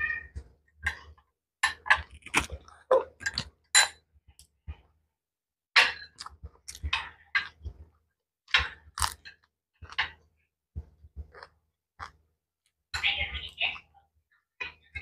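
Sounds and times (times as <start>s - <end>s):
wet mouth smacks and chewing: 11.3s - 12.2s.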